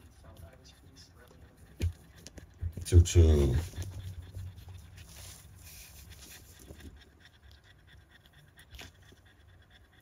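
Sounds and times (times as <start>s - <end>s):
light rustling on a pad: 0.0s - 7.1s
dog panting: 0.0s - 10.0s.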